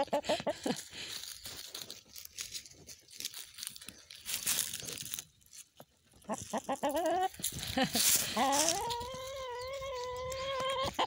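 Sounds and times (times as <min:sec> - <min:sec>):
hen clucking: 0:00.0 - 0:00.9, 0:06.1 - 0:11.0
dry leaves rustling and crackling: 0:00.5 - 0:11.0.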